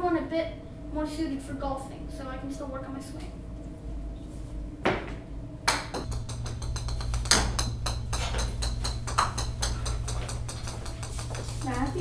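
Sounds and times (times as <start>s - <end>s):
stick hitting wooden floor: 6.0s - 12.0s.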